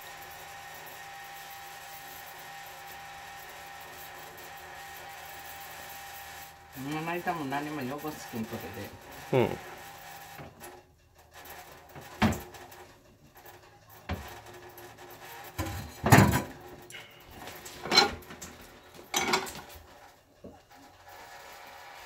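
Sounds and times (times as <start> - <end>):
utensils knocking on counter: 15.6 - 16.6, 19.1 - 19.7.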